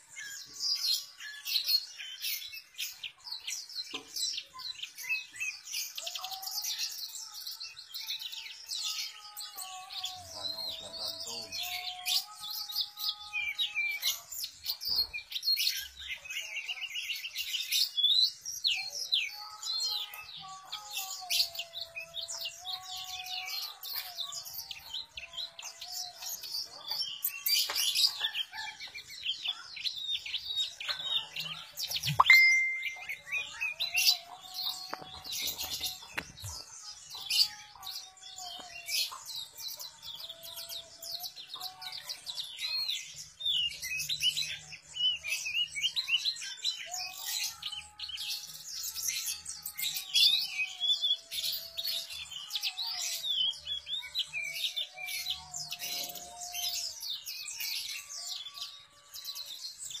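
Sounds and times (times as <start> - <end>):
bird chirping and trilling: 8.2 - 60.0.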